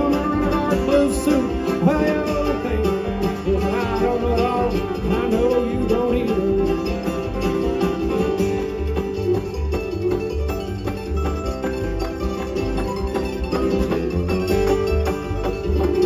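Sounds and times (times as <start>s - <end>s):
banjo: 0.0s - 16.0s
bluegrass band playing: 0.0s - 16.0s.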